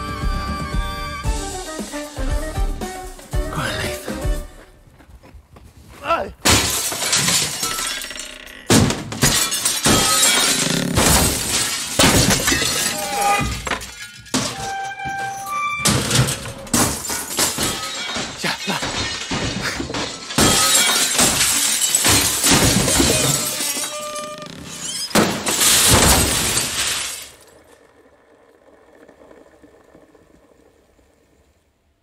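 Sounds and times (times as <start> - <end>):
window glass crashing and shattering: 6.4 - 27.6.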